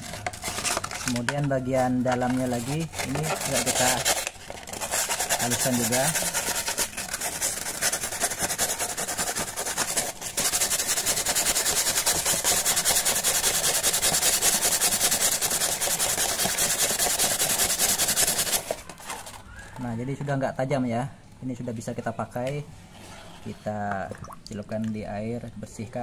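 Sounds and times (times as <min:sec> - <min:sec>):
sandpaper rubbing on glass: 0:00.0 - 0:19.4.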